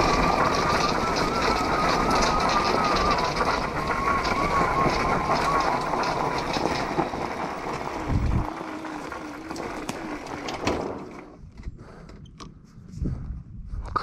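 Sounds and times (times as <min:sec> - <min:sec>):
wind rushing: 0:00.0 - 0:08.6
electric motor whine: 0:00.0 - 0:11.3
tyres on gravel: 0:00.0 - 0:11.8.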